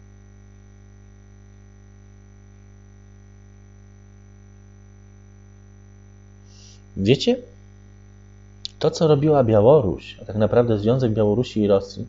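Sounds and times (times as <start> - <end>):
electrical mains hum: 0.0 - 12.0
faint high-pitched whine: 5.5 - 12.0.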